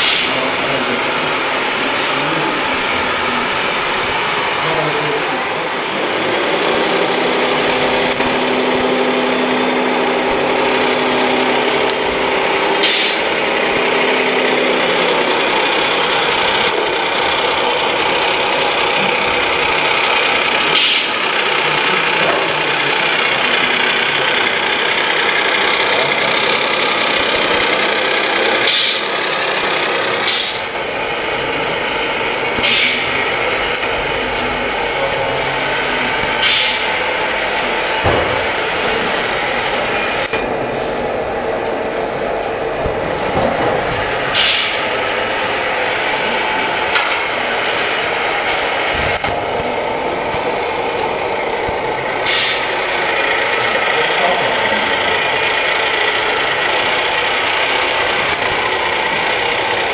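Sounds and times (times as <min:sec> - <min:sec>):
low engine-like hum: 0:00.0 - 0:59.9
model truck mechanical drone: 0:00.0 - 0:59.9.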